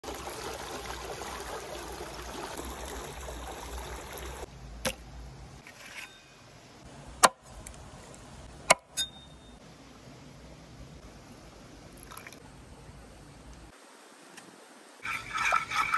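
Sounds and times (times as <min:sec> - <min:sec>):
stream water flowing over rocks: 0:00.0 - 0:04.5.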